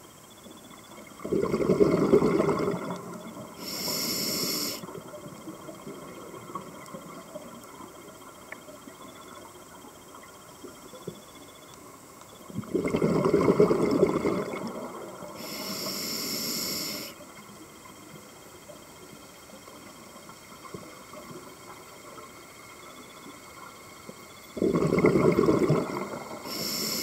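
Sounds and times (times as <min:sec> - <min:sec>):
bubbling exhaled air: 0:01.2 - 0:04.9, 0:12.6 - 0:17.2, 0:24.6 - 0:27.0
regulator hissing inhalation: 0:03.6 - 0:04.8, 0:15.4 - 0:17.2, 0:26.4 - 0:27.0.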